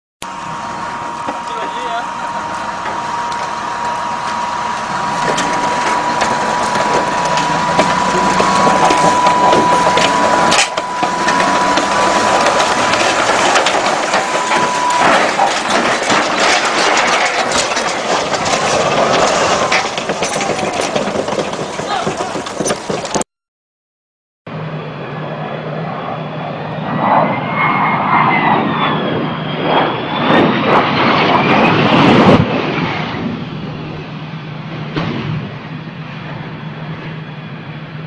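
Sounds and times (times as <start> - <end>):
engine running with high whine: 0.2 - 23.2, 24.5 - 38.0
tracks clanking and grinding: 0.2 - 23.2
vehicle crunching and clattering over: 0.3 - 23.2.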